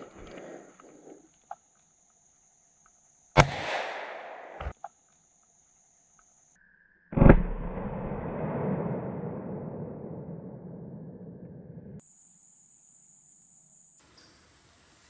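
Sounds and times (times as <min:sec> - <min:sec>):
rifle shot cracking: 0:03.4 - 0:04.7.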